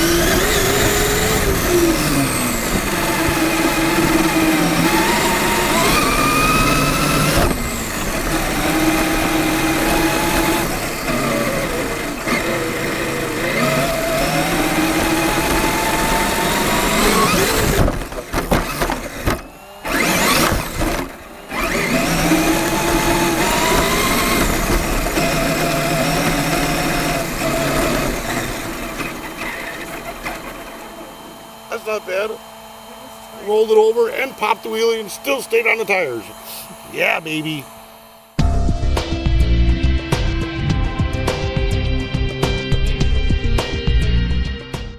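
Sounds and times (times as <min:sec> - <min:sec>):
rc truck motor whining: 0:00.0 - 0:38.5
truck tumbling knocks: 0:17.5 - 0:21.2.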